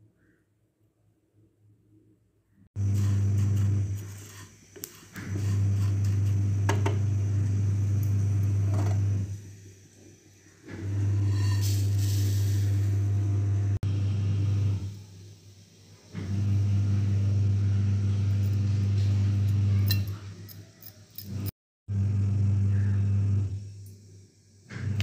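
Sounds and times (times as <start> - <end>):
low electrical hum: 1.2 - 25.0.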